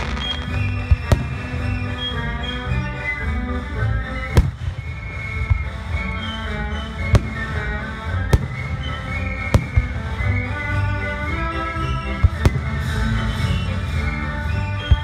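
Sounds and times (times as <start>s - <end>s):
fireworks bangs: 0.0s - 2.4s, 4.3s - 13.7s
music playing: 0.0s - 15.0s.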